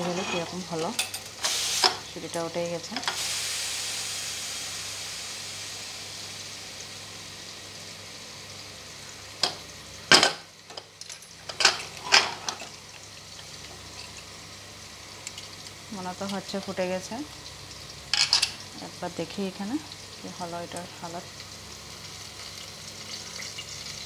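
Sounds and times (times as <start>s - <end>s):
metal cookware clattering: 0.0s - 2.0s, 9.4s - 12.8s, 18.1s - 18.6s
potatoes sizzling in oil: 0.0s - 24.0s.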